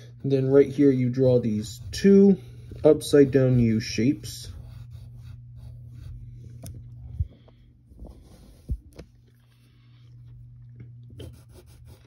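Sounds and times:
steady low hum: 0.0 - 12.0
pencil scratching on paper: 0.2 - 6.3, 11.2 - 12.0.

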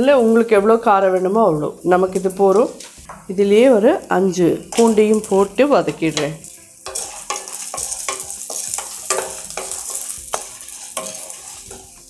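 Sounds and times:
seeds rattling and sizzling: 0.0 - 12.0
wooden spatula scraping pan: 4.6 - 12.0.

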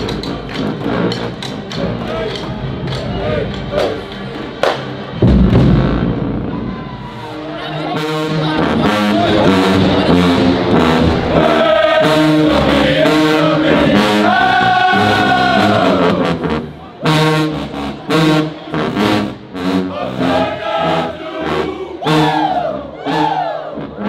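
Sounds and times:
marching band brass fanfare: 0.0 - 24.0
drum hits: 4.6 - 6.5.

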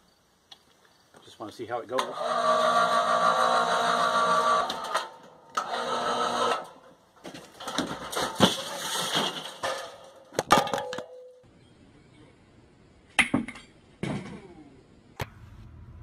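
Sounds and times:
clattering knocks and crashes: 6.6 - 11.2.

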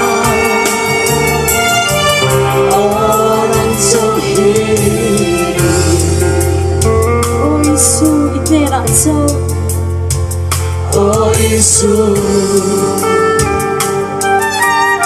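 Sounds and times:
voices singing worship song: 0.0 - 8.6, 10.7 - 14.2
steady percussive beat: 0.0 - 15.0
sustained bass notes: 0.0 - 15.0.

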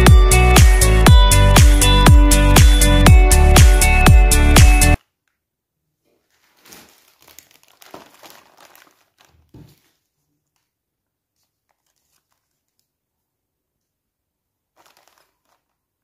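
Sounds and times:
plastic bags crinkling: 6.1 - 13.0, 14.7 - 16.0.

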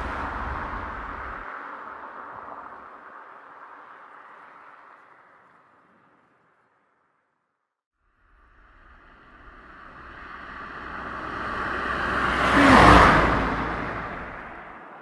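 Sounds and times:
vehicle passing by: 0.0 - 5.1, 8.3 - 15.0.

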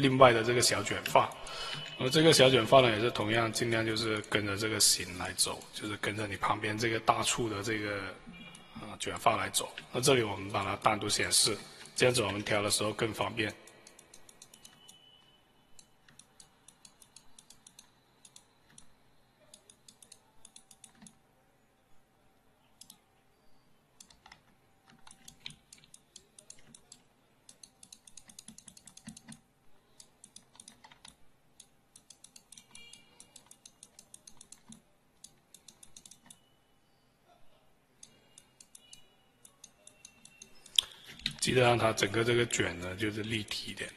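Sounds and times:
keyboard and mouse clicking: 0.8 - 2.0, 3.7 - 4.4, 11.5 - 12.9, 13.6 - 21.2, 22.8 - 23.0, 24.0 - 36.5, 38.0 - 41.5.

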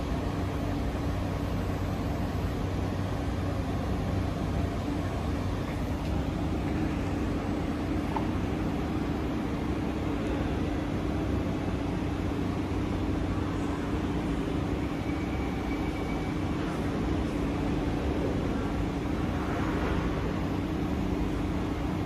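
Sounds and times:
train equipment humming: 0.0 - 22.0.

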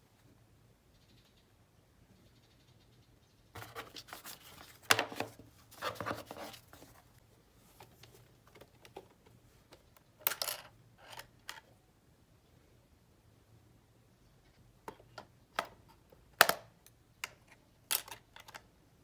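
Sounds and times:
plastic keyboard rustling in box: 3.6 - 7.0.

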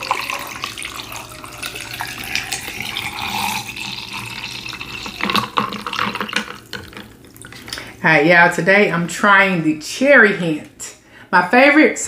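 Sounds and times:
water pouring: 0.0 - 8.0.

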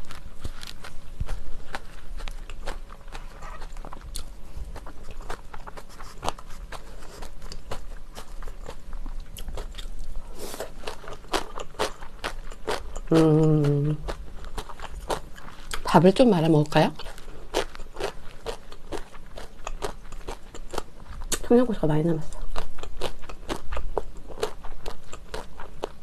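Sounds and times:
chewing and crunchy bites: 0.0 - 21.5, 22.1 - 26.0
person humming: 13.1 - 14.0.

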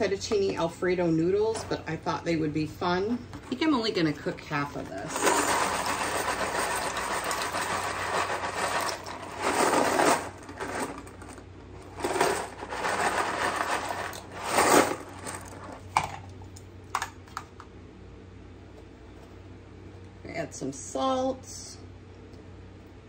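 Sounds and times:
dry pasta rattling: 5.0 - 15.9.

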